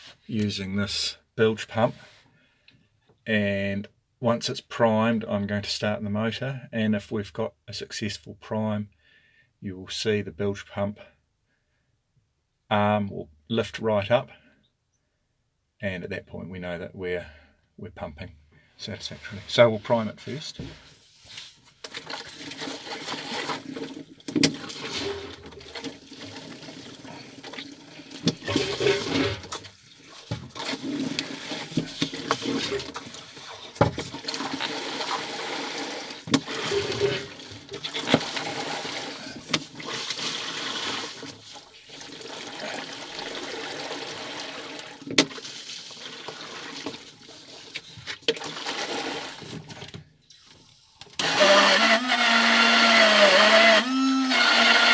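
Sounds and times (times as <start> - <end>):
water gurgling through hoses: 22.0 - 49.5
hand pump strokes: 30.5 - 41.1, 51.2 - 54.9.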